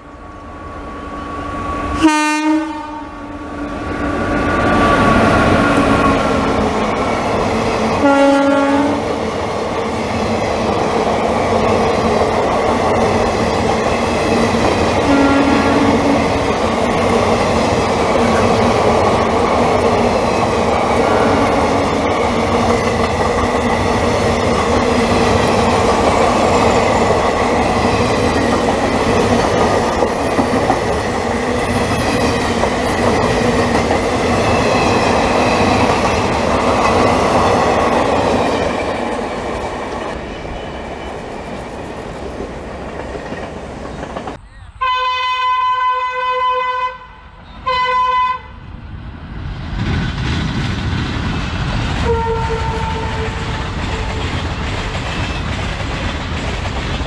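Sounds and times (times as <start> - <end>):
train wheel and track rush: 0.0 - 44.6, 48.4 - 57.0
train horn blast: 2.0 - 3.4, 8.0 - 9.1, 15.0 - 16.4, 21.1 - 22.0, 44.8 - 48.6, 52.0 - 54.2.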